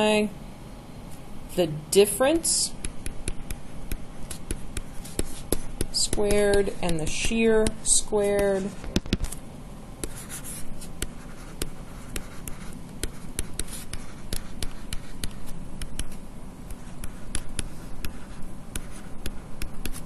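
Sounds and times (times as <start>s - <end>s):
stylus tapping on tablet: 2.8s - 9.3s, 11.0s - 20.0s.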